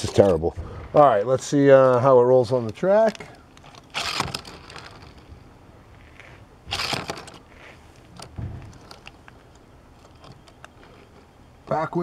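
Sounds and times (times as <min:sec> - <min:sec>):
toy car clattering on plastic track: 0:06.7 - 0:07.7
dull thump: 0:08.3 - 0:09.0.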